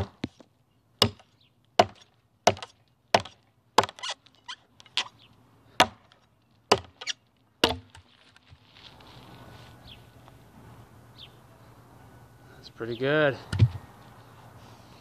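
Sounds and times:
blade chopping into log: 0:01.0 - 0:04.2, 0:05.8 - 0:08.0.

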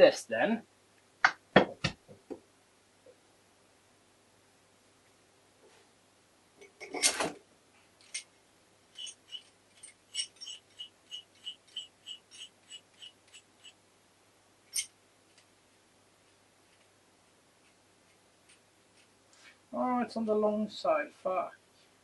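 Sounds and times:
metal parts clattering: 0:09.0 - 0:12.5.

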